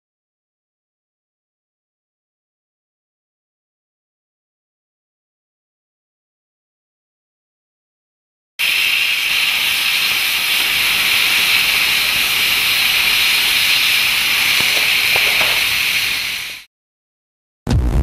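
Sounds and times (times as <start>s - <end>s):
faint crackles: 8.6s - 16.6s
cutting torch hissing: 8.6s - 16.7s.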